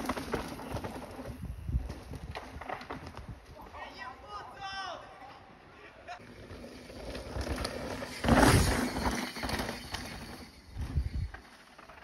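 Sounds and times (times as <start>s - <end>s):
bike tyres skidding on dirt: 0.0s - 3.5s, 6.2s - 12.0s.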